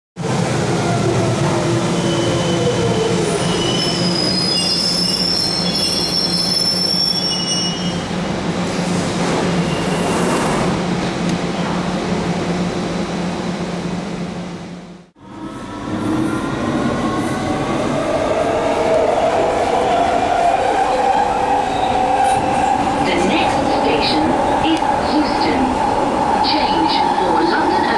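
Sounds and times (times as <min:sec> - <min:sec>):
underground train running: 0:00.2 - 0:27.9
high wheel squeal: 0:03.3 - 0:08.0.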